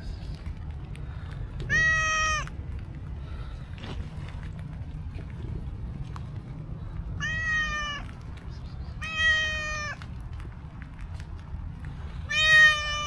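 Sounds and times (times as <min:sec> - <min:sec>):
low background rumble: 0:00.0 - 0:13.0
cat meowing: 0:01.6 - 0:02.5, 0:07.2 - 0:08.1, 0:09.0 - 0:10.0, 0:12.3 - 0:13.0.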